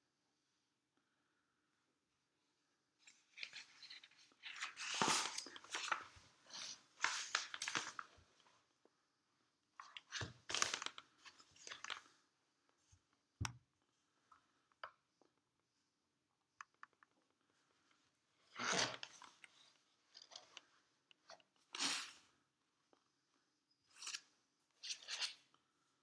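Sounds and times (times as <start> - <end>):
paper rustling: 3.1 - 8.2.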